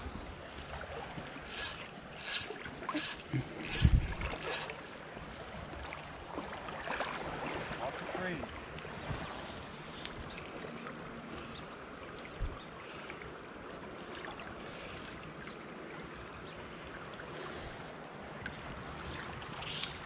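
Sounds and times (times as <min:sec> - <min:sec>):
creek water flowing: 0:01.5 - 0:04.7.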